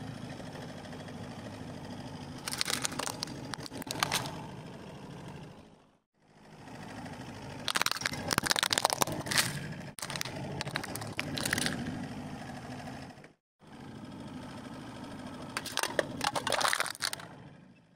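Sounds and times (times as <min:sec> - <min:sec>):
car engine running: 0:00.0 - 0:17.9
aluminium can crushing: 0:02.4 - 0:04.4, 0:07.6 - 0:11.8, 0:15.6 - 0:17.3
plastic toy cracking under tire: 0:02.4 - 0:04.4, 0:07.7 - 0:11.8, 0:15.6 - 0:17.3.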